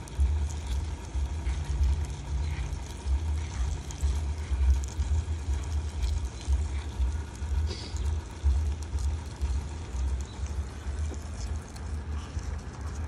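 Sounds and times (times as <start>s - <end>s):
faint scratchy insect clicks: 0.0s - 13.0s
low uneven rumble: 0.0s - 13.0s.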